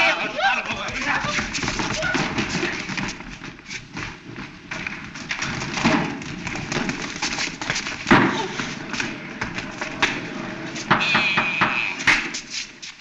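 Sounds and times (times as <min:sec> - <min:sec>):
thumps of people scrambling: 0:00.0 - 0:12.6.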